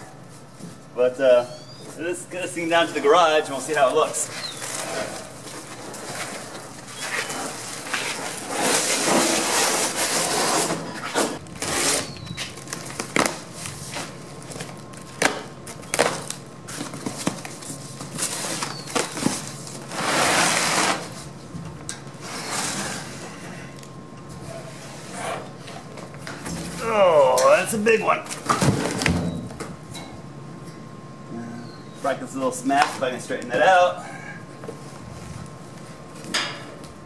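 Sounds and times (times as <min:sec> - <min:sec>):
cardboard flaps scraping: 0:04.3 - 0:15.4
cardboard tearing: 0:06.0 - 0:14.2
blade slitting packing tape: 0:07.0 - 0:12.2.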